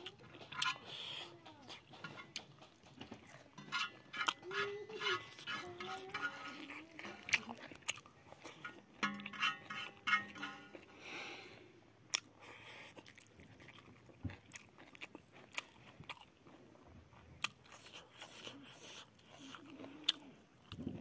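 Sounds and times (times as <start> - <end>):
man chewing food: 0.0 - 21.0.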